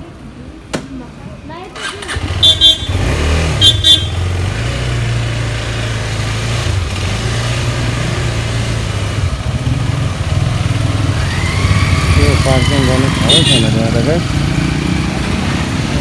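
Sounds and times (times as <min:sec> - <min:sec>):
motorcycle engine running: 0:01.8 - 0:16.0
motorcycle horn beeps: 0:01.9 - 0:04.3, 0:13.3 - 0:13.9.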